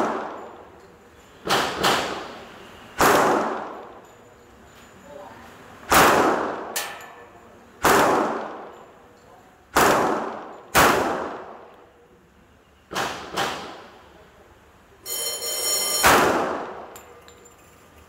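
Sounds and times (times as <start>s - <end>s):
pistol shots with echo: 0.0s - 0.6s, 3.0s - 3.9s, 5.9s - 6.8s, 7.8s - 8.7s, 9.7s - 11.7s, 16.0s - 17.0s
ringing tone: 15.0s - 16.3s.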